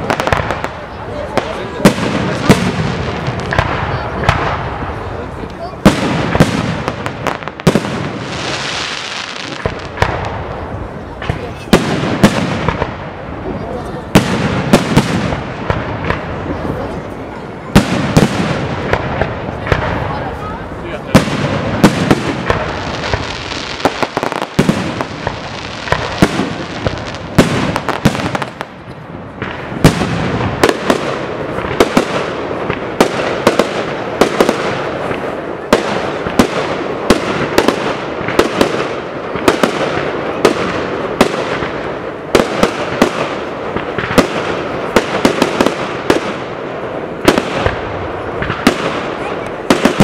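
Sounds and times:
continuous firework crackle: 0.0s - 50.0s.

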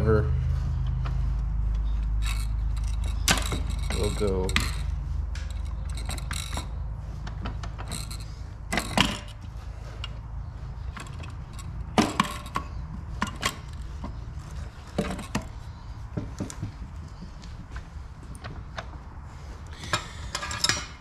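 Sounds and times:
steady low hum: 0.0s - 21.0s
metal clinks and knocks: 1.7s - 10.2s, 10.8s - 17.4s, 19.9s - 21.0s.

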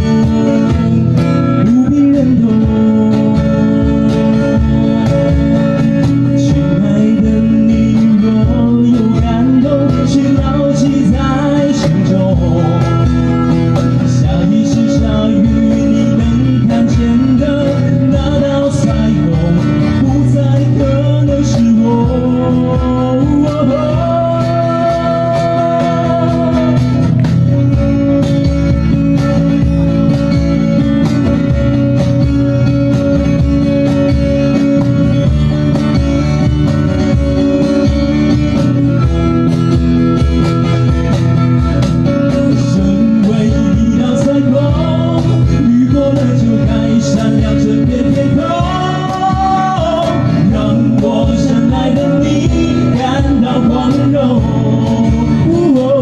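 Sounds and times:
man singing: 0.0s - 27.9s, 41.8s - 56.0s
acoustic guitars strummed: 0.0s - 56.0s
cajon beat: 0.0s - 56.0s.

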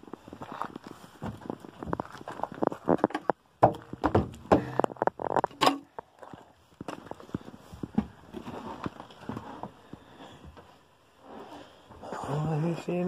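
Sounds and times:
footsteps on caravan floor: 0.0s - 3.1s, 6.3s - 12.2s.

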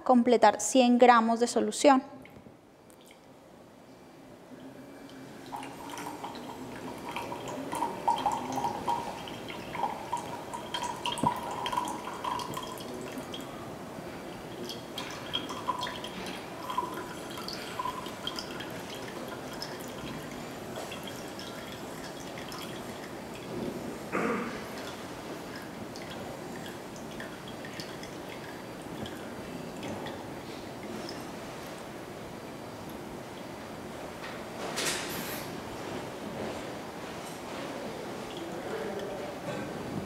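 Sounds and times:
water trickling into a glass beaker: 4.6s - 23.5s, 24.6s - 31.6s, 38.1s - 39.4s.

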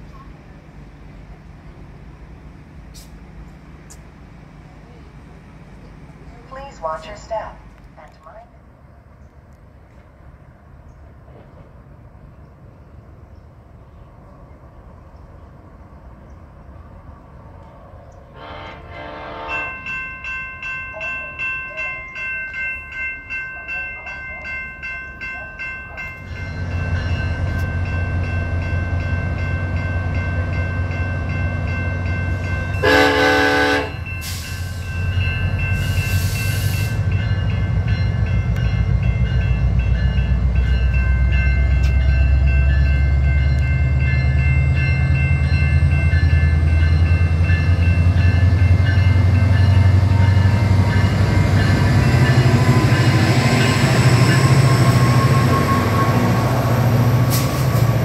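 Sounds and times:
diesel locomotive engine: 0.0s - 58.0s
train horn blast: 18.3s - 19.8s, 32.8s - 34.1s
train bell ringing: 19.0s - 58.0s.

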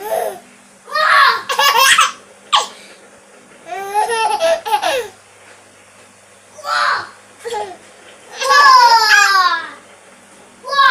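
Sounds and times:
baby laughing: 1.3s - 2.7s, 3.7s - 5.2s, 8.4s - 9.3s.

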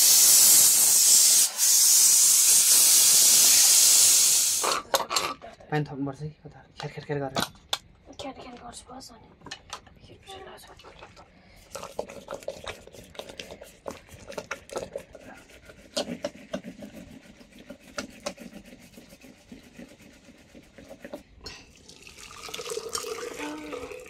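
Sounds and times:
rod whisking in metal pot: 11.5s - 21.6s.

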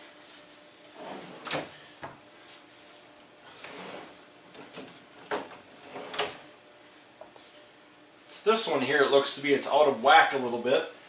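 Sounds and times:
drawers sliding open and shut: 1.0s - 1.8s, 3.4s - 6.5s.

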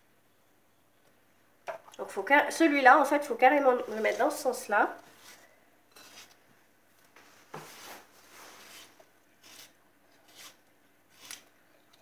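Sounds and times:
vegetable sharpener scraping cucumber: 5.2s - 6.4s, 9.4s - 11.5s.

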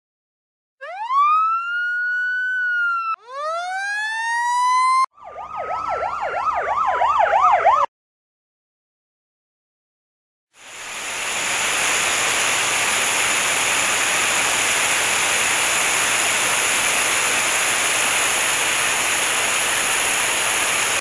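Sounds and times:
slowly falling tone: 0.8s - 7.8s
fast yelp siren: 0.8s - 7.9s
siren wailing: 0.8s - 7.9s.

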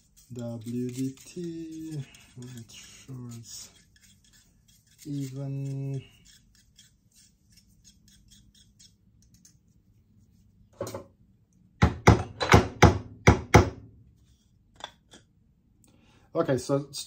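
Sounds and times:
needle tool scratching coffee grounds: 0.0s - 9.6s.

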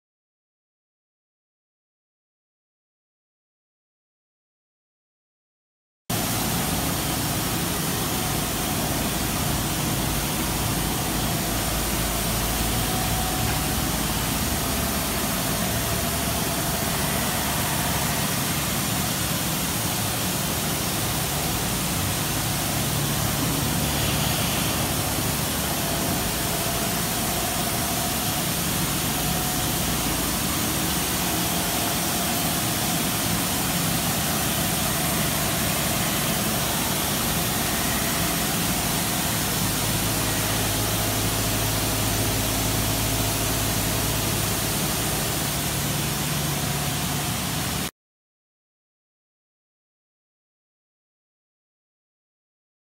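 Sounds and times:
machinery running: 6.2s - 47.9s
strong even hiss: 6.2s - 47.9s.

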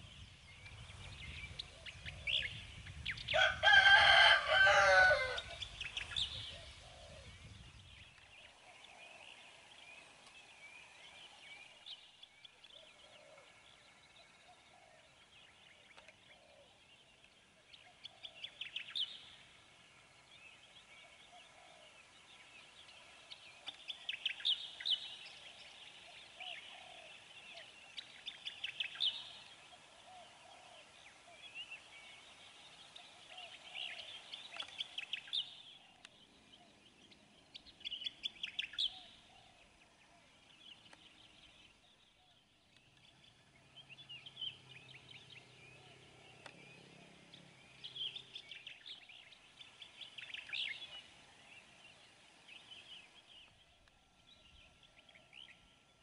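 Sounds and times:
small birds chirping: 0.0s - 56.0s
rooster crowing: 3.4s - 5.6s.

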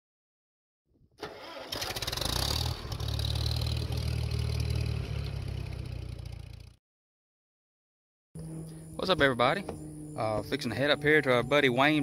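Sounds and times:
engine starter cranking: 1.2s - 3.9s
engine running with low rumble: 2.0s - 6.8s.

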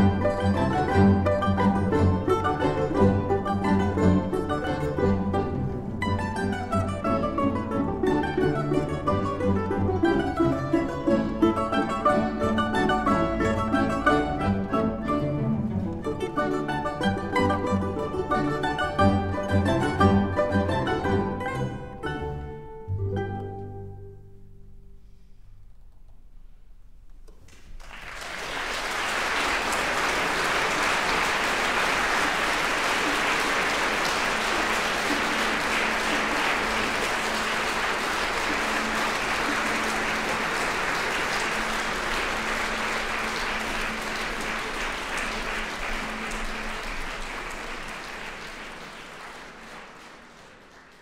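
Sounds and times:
audience applauding: 0.0s - 14.8s, 27.3s - 51.0s.

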